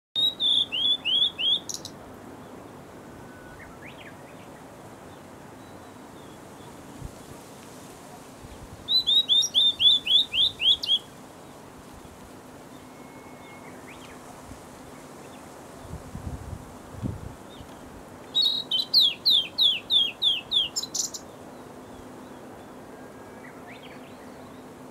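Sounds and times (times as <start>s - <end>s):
bird whistled song: 0.2s - 1.9s, 3.2s - 4.5s, 8.9s - 11.1s, 12.7s - 14.2s, 18.3s - 21.2s.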